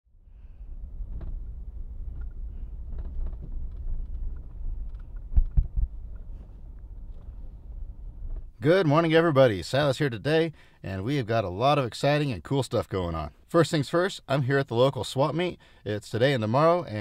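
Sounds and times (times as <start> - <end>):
truck rumbling from inside cab: 0.2 - 8.7
quick thumps: 0.8 - 8.6.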